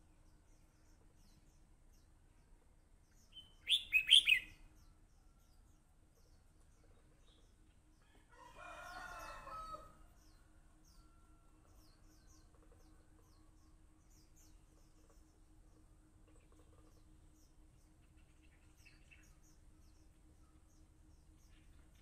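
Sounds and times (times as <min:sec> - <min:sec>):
faint high bird chirps: 0:03.1 - 0:15.4, 0:16.2 - 0:22.0
bird whistled notes: 0:03.6 - 0:04.5.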